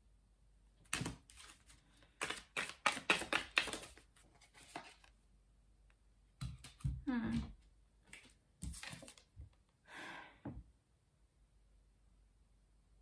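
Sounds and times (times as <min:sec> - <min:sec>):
cards being shuffled: 0:00.9 - 0:05.1, 0:08.1 - 0:09.3.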